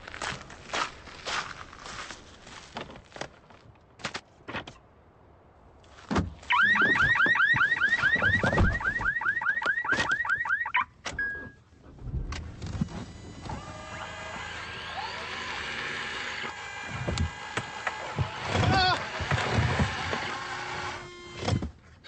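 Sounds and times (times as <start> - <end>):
car alarm siren warbling: 6.5 - 11.5.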